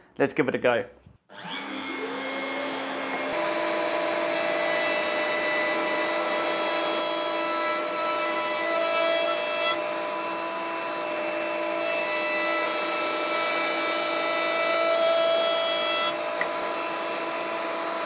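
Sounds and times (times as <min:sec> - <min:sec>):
router bit cutting wood: 0:01.3 - 0:18.0
router whining: 0:01.3 - 0:18.0.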